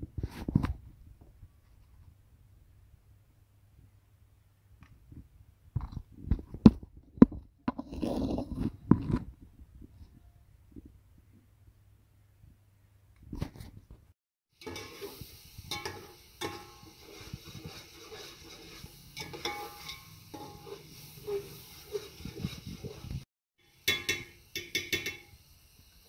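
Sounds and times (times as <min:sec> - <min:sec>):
oil sizzling in a pot: 0:14.5 - 0:26.0
metal spoon clinking on pot: 0:14.6 - 0:15.1, 0:15.7 - 0:16.9, 0:19.2 - 0:22.1, 0:23.7 - 0:25.4.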